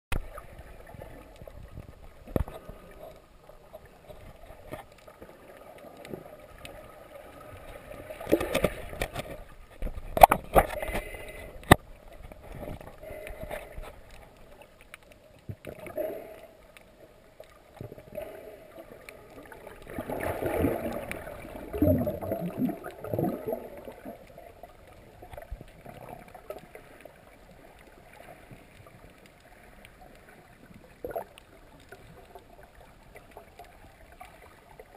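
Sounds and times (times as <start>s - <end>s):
sharp clicks underwater: 0.1s - 3.0s, 3.7s - 6.8s, 7.5s - 27.1s, 27.7s - 34.6s
muffled underwater water hush: 0.1s - 34.9s
water rushing: 17.4s - 34.9s.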